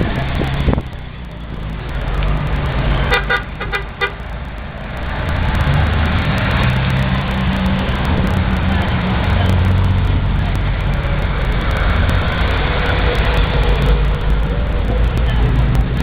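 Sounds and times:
cars passing slowly: 0:00.0 - 0:16.0
car horn toots: 0:03.0 - 0:04.3.

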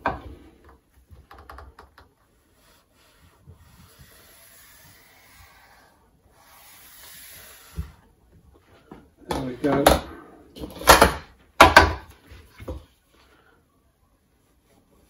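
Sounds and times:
pencil scraping on plastic pipe: 0:02.2 - 0:08.0.

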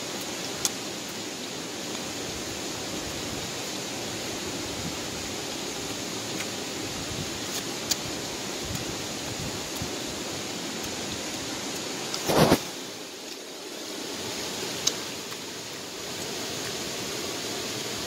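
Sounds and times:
outdoor background hiss: 0:00.0 - 0:18.0.

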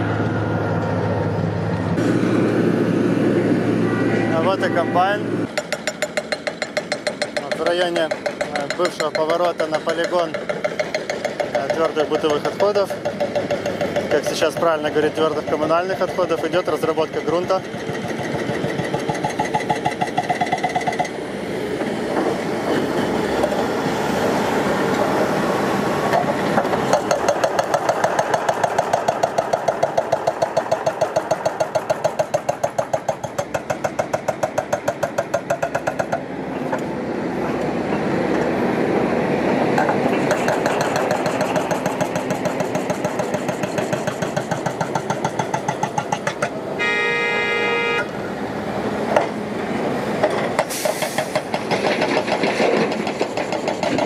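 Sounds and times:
diesel engine running: 0:00.0 - 0:08.7
short pitched tone: 0:03.3 - 0:05.3
rapid even pounding: 0:05.5 - 0:21.1, 0:39.8 - 0:46.5.

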